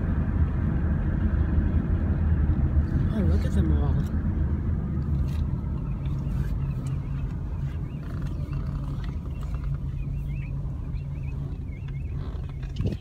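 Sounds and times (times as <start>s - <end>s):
car engine idling: 0.0s - 13.0s
birds chirping: 5.1s - 13.0s.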